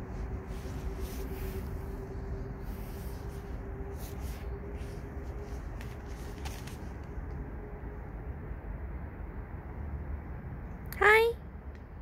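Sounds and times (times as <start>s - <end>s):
faint rustles: 0.0s - 7.5s
faint hum: 0.0s - 12.0s
outdoor background rumble: 0.0s - 12.0s.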